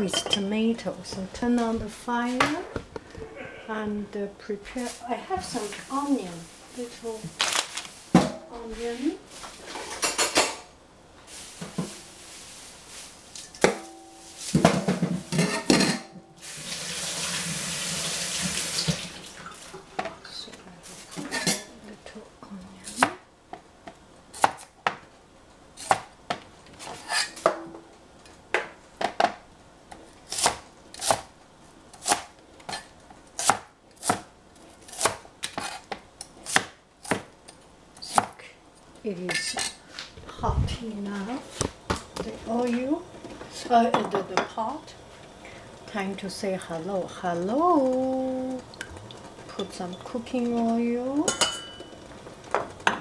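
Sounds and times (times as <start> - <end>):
kitchen tap running: 16.4 - 19.9.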